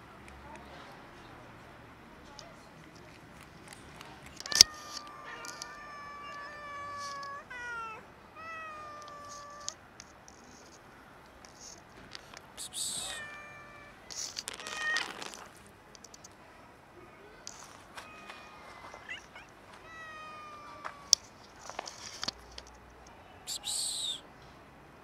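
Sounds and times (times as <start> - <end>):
brief rustles: 2.4 - 7.4, 14.0 - 16.4, 17.5 - 19.6, 20.7 - 22.9
cat meowing: 4.4 - 9.8, 12.7 - 15.4, 18.0 - 21.2.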